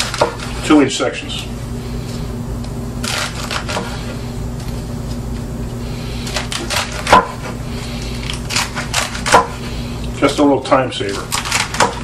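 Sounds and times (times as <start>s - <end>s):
knife chopping greens on a board: 0.0s - 0.5s, 3.1s - 4.0s, 6.3s - 7.6s, 8.5s - 9.6s, 11.3s - 12.0s
low hum: 0.0s - 10.4s.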